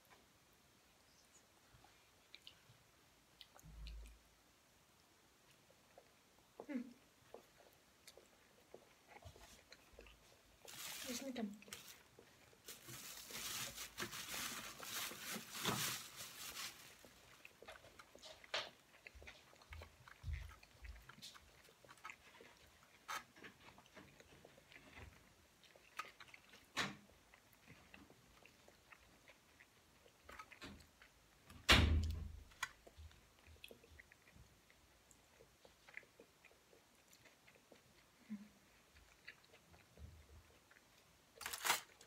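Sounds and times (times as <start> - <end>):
chewing: 1.1 - 4.3, 5.4 - 31.6, 32.4 - 42.0
rustling: 9.1 - 25.2.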